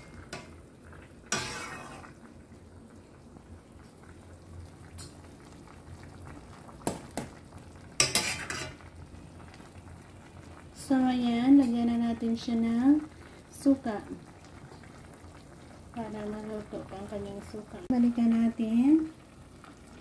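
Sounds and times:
broth simmering: 0.0s - 20.0s
metal ladle scraping pot: 1.3s - 2.2s, 8.0s - 8.8s.

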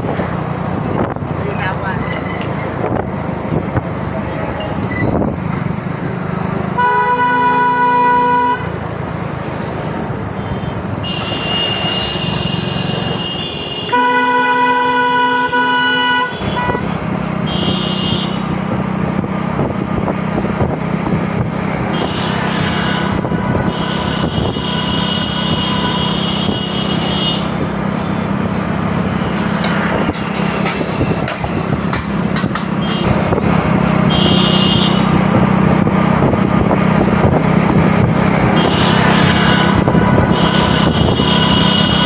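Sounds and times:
engine hum: 0.0s - 42.0s
deep vehicle horn: 6.8s - 8.8s, 11.0s - 18.5s, 21.9s - 27.6s, 34.0s - 35.2s, 38.4s - 42.0s
shrill vehicle horn: 6.8s - 8.8s, 10.4s - 18.5s, 21.9s - 27.5s, 34.1s - 35.2s, 38.5s - 42.0s.

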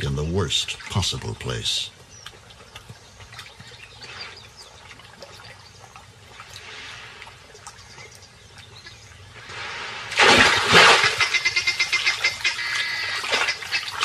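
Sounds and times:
animal lapping water: 0.4s - 14.0s.

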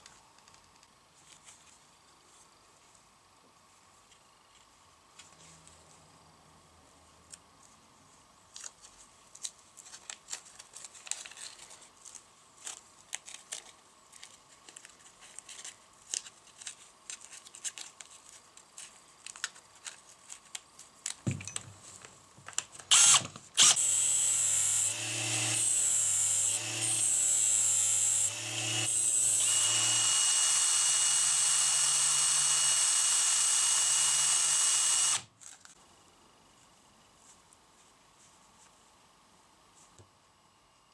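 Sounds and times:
cordless drill running: 22.9s - 35.3s.

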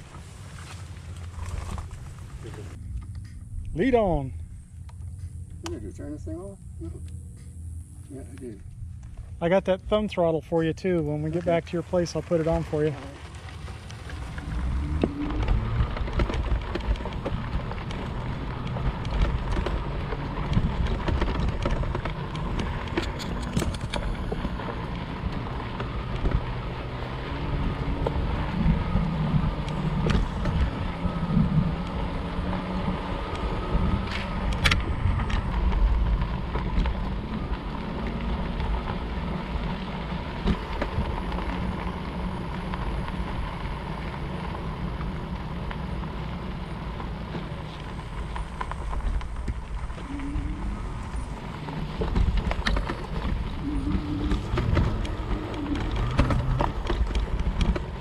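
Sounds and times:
tyres rumbling over dirt: 0.0s - 4.9s, 8.4s - 58.0s
faint steady whine: 0.0s - 58.0s
sharp clicks or rattles: 13.8s - 24.4s
wind buffeting microphone: 47.9s - 58.0s.

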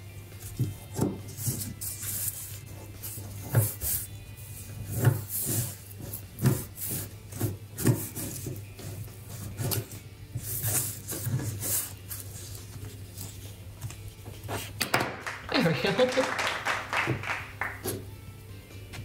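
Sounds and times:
hands rubbing plastic toy: 0.4s - 13.6s.

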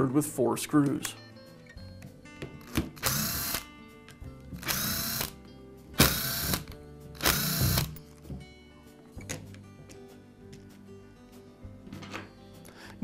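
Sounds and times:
cordless screwdriver whirring: 2.7s - 3.6s, 4.6s - 5.4s, 6.0s - 7.9s.

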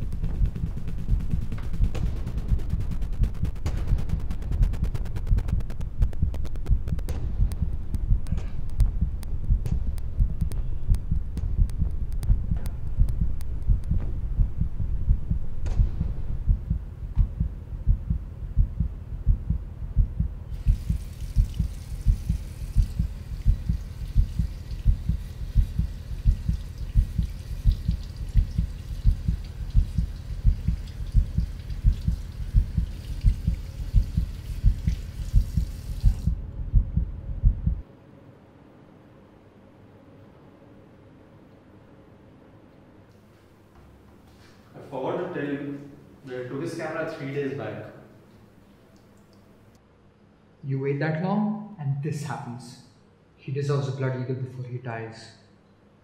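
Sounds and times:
heartbeat thumps: 0.0s - 37.9s
running tap hissing: 20.5s - 36.4s.

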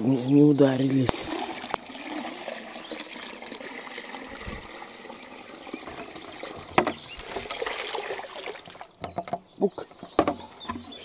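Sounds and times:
water pouring from bucket: 0.9s - 9.0s.

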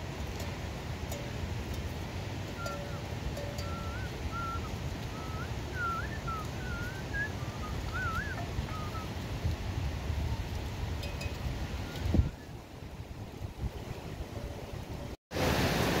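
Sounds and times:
wind rumble on microphone: 0.0s - 15.2s
wavering whistled notes: 2.5s - 9.1s.

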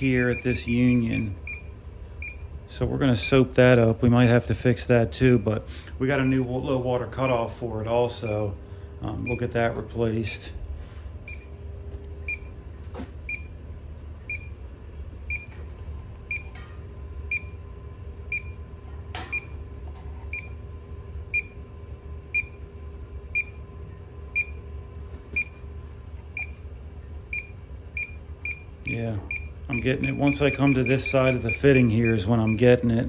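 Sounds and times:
gas leak detector beeping: 0.0s - 9.8s, 11.2s - 11.6s, 12.2s - 12.6s, 13.2s - 13.6s, 14.2s - 14.6s, 15.2s - 15.7s, 16.3s - 16.6s, 17.2s - 17.6s, 18.3s - 19.7s, 20.3s - 21.7s, 22.3s - 22.7s, 23.3s - 23.7s, 24.3s - 24.7s, 25.3s - 25.7s, 26.3s - 26.6s, 27.3s - 33.0s
low steady hum: 0.0s - 33.0s.

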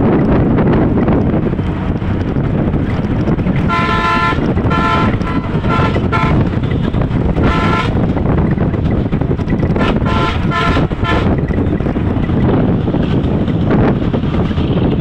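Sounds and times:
wind and road rumble: 0.0s - 15.0s
vehicle horn toots: 3.7s - 8.0s, 9.8s - 11.4s.

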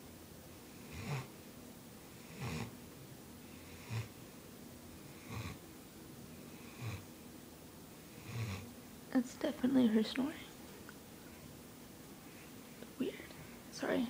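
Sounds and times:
puppy snoring: 0.6s - 1.4s, 2.0s - 2.8s, 3.5s - 4.4s, 5.0s - 5.6s, 6.4s - 7.1s, 8.1s - 8.8s.

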